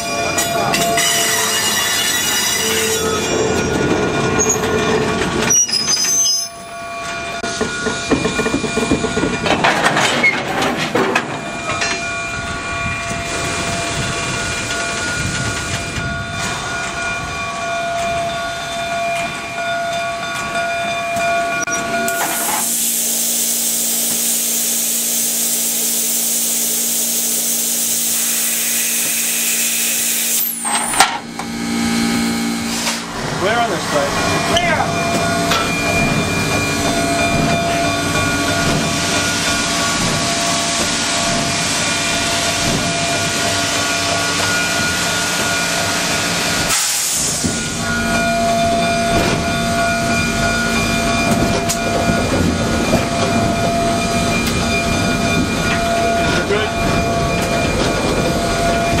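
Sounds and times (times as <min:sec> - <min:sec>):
steam locomotive hissing: 0:21.6 - 0:30.9, 0:31.5 - 0:59.0.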